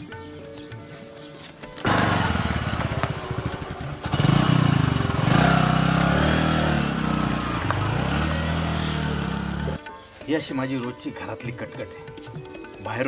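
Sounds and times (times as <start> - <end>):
motorcycle engine revving: 1.8 - 9.8.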